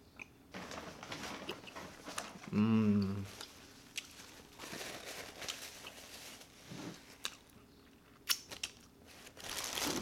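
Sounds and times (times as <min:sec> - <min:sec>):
plastic bag rustling: 0:00.5 - 0:02.5, 0:03.3 - 0:07.2, 0:08.5 - 0:10.0.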